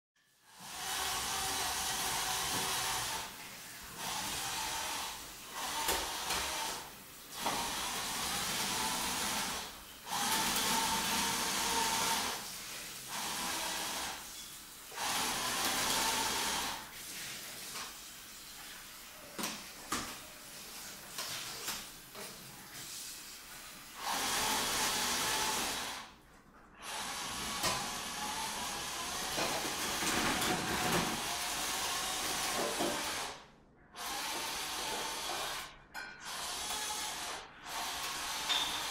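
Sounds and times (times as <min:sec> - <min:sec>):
toy motors whirring: 0:04.0 - 0:12.4, 0:34.0 - 0:38.9.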